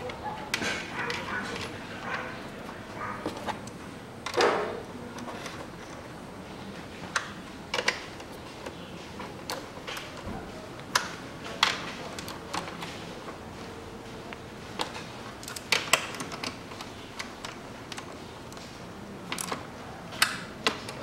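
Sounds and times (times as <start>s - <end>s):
plastic parts clicking and knocking: 3.0s - 6.1s, 6.8s - 13.5s, 14.7s - 21.0s.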